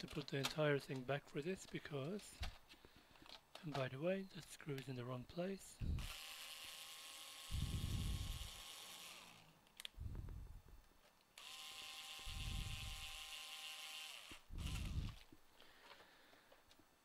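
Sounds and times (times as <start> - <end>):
electric screwdriver whirring: 5.9 - 9.6, 11.4 - 15.3.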